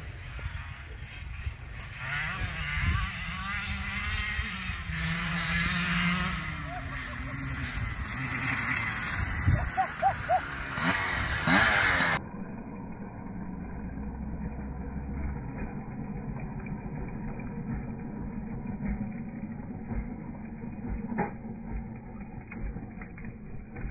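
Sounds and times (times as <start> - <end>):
dirt bike engine revving and idling: 0.0 - 23.9.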